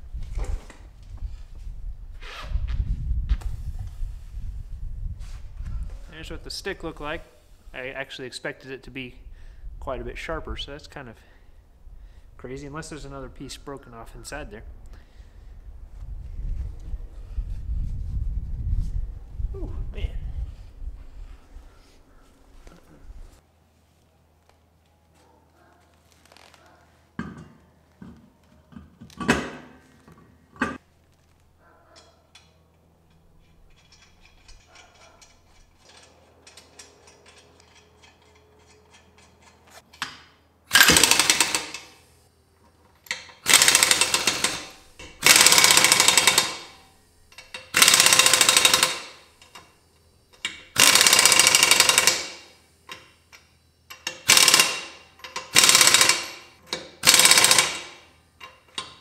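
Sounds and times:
knocks and clinks of wheel: 31.9s - 41.9s, 47.3s - 59.0s
air impact wrench hammering: 40.0s - 42.1s, 43.1s - 49.6s, 50.4s - 59.0s.

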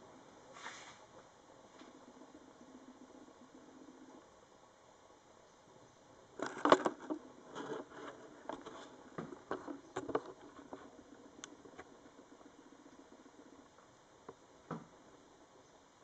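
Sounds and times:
rustles: 0.0s - 4.6s, 5.3s - 16.0s
small clicks and knocks: 6.4s - 11.9s.

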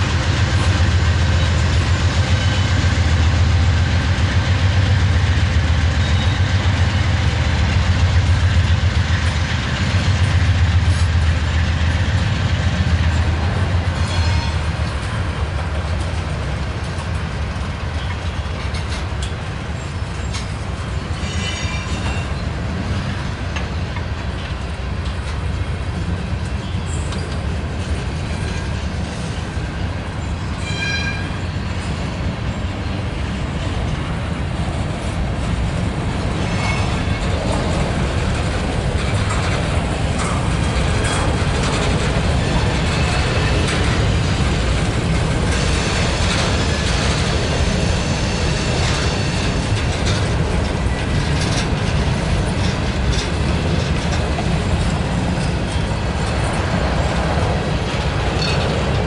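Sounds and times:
freight train wheels rumbling: 0.0s - 59.0s
high-pitched wheel squeal: 30.6s - 31.4s.

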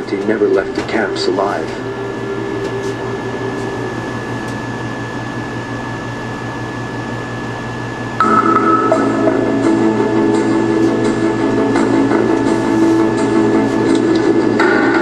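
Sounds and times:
music: 0.0s - 4.6s, 8.2s - 15.0s
fan-like hum and hiss: 0.0s - 14.5s
high constant whine: 0.0s - 15.0s.

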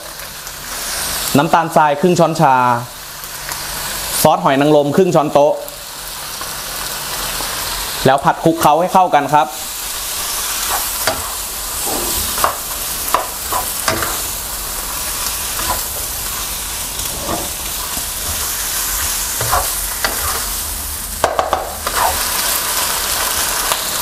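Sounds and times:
food sizzling in a wok: 0.0s - 24.0s
spatula scraping and knocking pan: 10.6s - 20.5s.

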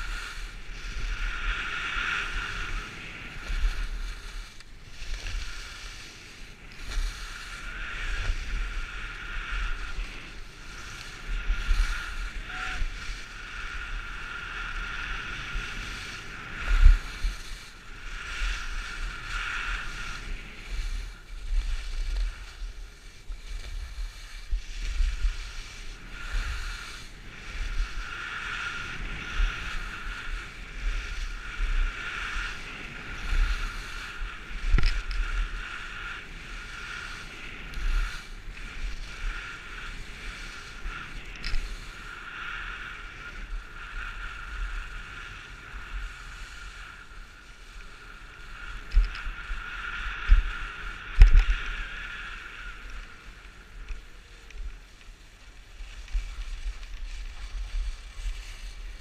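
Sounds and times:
skis scraping over snow: 0.0s - 59.0s
wind buffeting microphone: 0.0s - 59.0s.

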